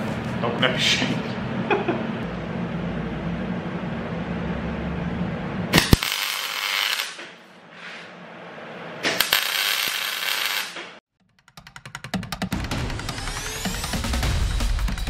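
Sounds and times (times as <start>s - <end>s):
steady low hum: 0.0s - 6.0s
welding arc crackling and sizzling: 5.7s - 7.4s, 9.1s - 11.0s.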